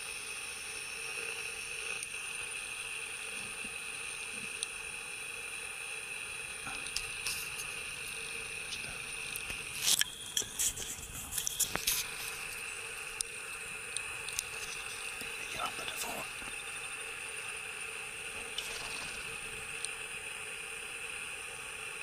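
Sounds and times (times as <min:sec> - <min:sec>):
high-pitched insect chorus: 0:05.9 - 0:22.0.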